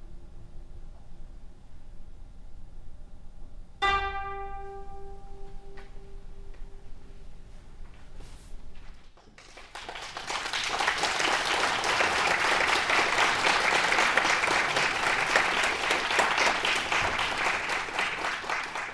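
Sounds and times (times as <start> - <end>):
audience applause: 9.2 - 18.9.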